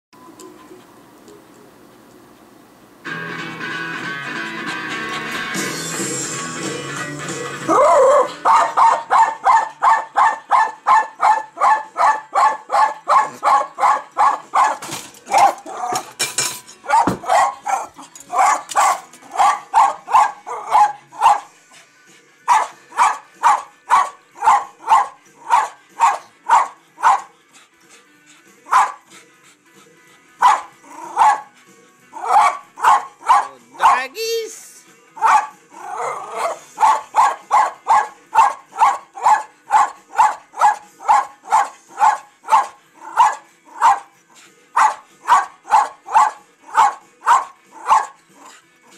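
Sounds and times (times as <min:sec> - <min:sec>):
dog barking rapidly: 0:07.9 - 0:16.0, 0:16.9 - 0:21.5, 0:22.5 - 0:27.3, 0:28.7 - 0:29.0, 0:30.4 - 0:31.6, 0:32.2 - 0:34.2, 0:35.2 - 0:44.1, 0:44.8 - 0:48.5.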